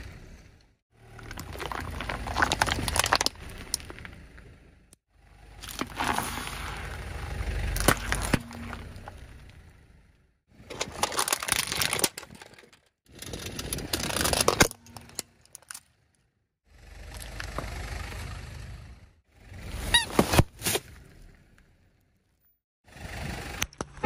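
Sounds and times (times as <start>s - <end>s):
tyre crushing objects: 1.2s - 4.0s, 5.6s - 7.0s, 7.6s - 9.2s.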